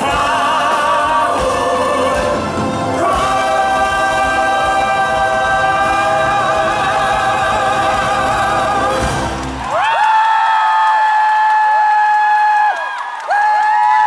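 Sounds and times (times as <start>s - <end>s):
man singing lead: 0.0s - 9.4s
choir holding a sung note: 0.0s - 9.6s
backing music: 0.0s - 9.8s.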